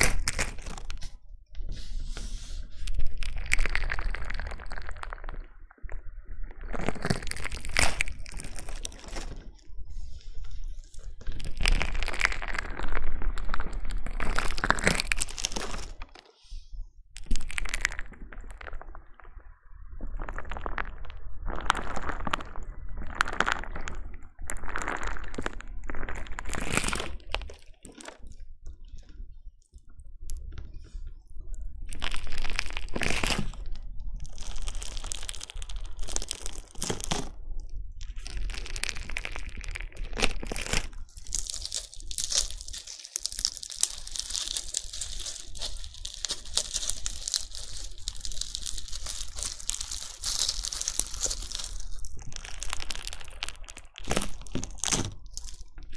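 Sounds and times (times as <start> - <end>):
slime squishing and crackling: 0.0 - 16.4, 17.1 - 55.9.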